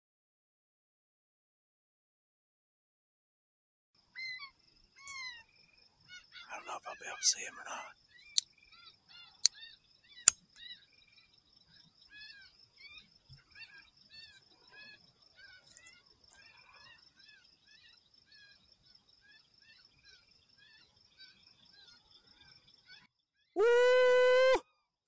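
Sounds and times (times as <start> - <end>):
high insect trill: 4.0 - 22.9
bird chirping: 4.0 - 23.6.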